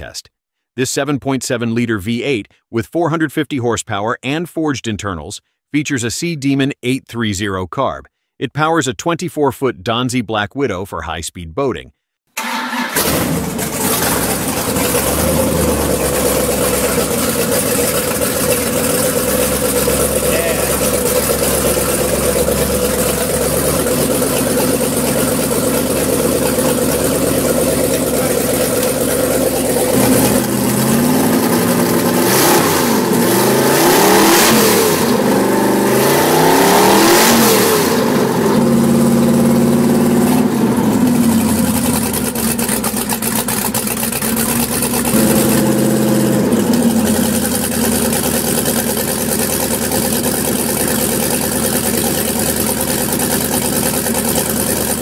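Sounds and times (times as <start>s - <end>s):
boat engine idling and revving: 13.0s - 55.0s.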